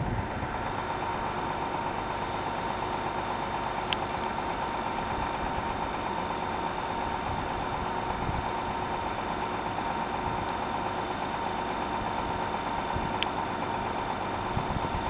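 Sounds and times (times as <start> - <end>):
mechanical hum with whine: 0.0 - 2.9, 14.4 - 15.0.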